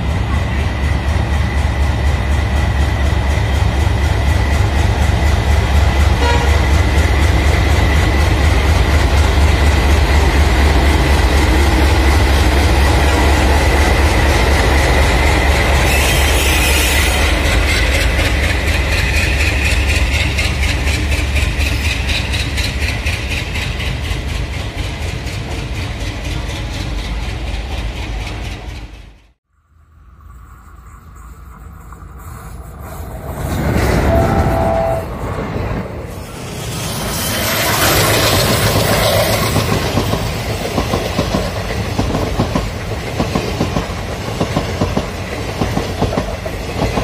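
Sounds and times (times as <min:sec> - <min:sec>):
train wheels clickety-clack: 0:00.0 - 0:29.4, 0:36.4 - 0:47.0
locomotive engine rumbling and whining: 0:31.4 - 0:40.6.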